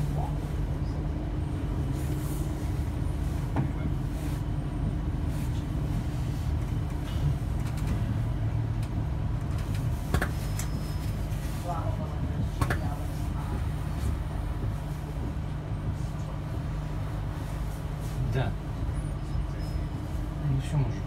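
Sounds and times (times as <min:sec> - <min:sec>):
train engine drone: 0:00.0 - 0:21.0.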